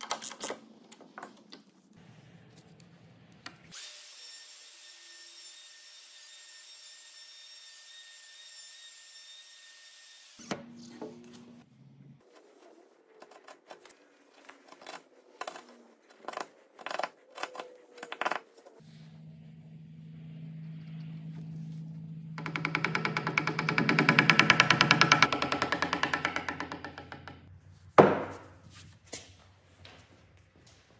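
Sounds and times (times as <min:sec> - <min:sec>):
low steady hum: 0:18.8 - 0:22.7.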